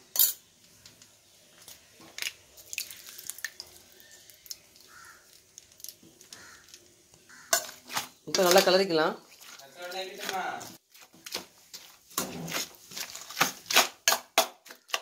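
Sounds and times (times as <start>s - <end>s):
wet plops of curd pouring: 2.1s - 6.3s.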